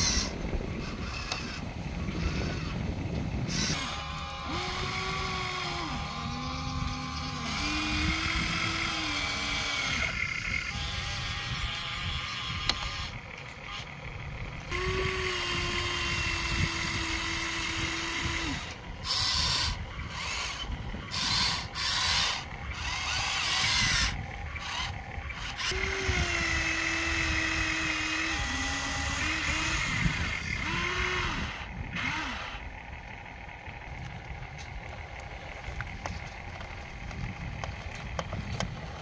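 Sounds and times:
toy excavator motors whining: 0.0 - 39.0
rough rasp: 14.7 - 32.6.

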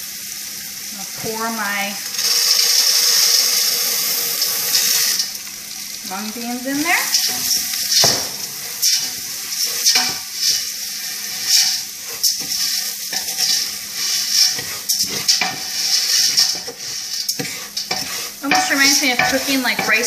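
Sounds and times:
food sizzling in pot: 0.0 - 20.0
wooden spoon stirring swish: 11.2 - 20.0.

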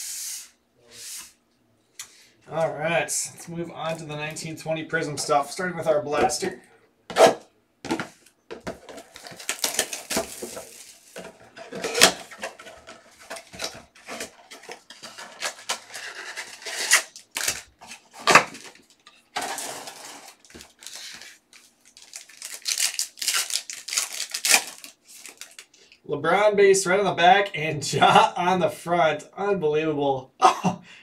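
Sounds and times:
foil packs crinkling: 8.6 - 25.8
cardboard box ripping: 9.0 - 11.2.

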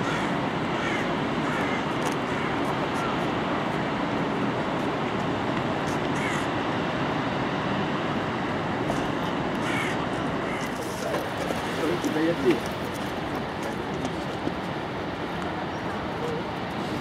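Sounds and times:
crow cawing: 0.0 - 3.1, 6.2 - 6.5, 9.6 - 10.7.

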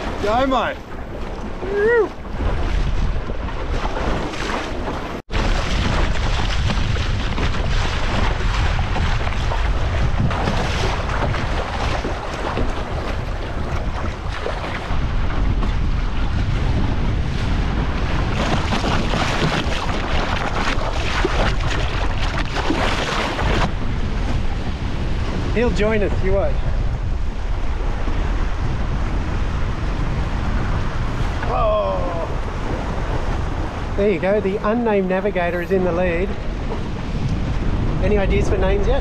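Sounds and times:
water splashing along boat hull: 0.0 - 25.9, 26.6 - 31.6, 32.2 - 39.0
wind buffeting microphone: 0.0 - 39.0.

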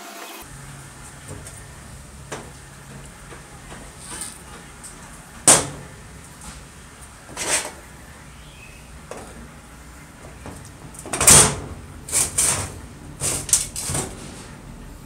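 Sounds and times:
hand tool scraping metal: 2.3 - 4.7, 7.3 - 7.8, 12.1 - 14.6.

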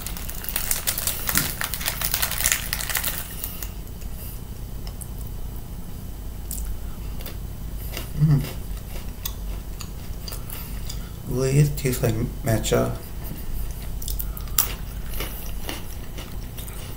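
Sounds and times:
plastic wrapper crinkling: 0.0 - 3.7.

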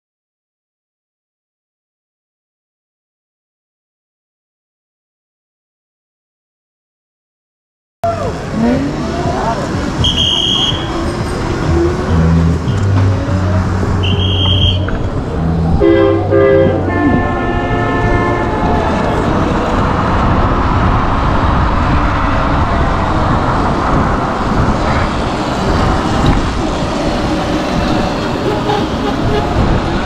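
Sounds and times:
wind and road noise: 8.0 - 30.0
horn blasts: 10.0 - 15.0, 15.7 - 19.2, 28.2 - 30.0.

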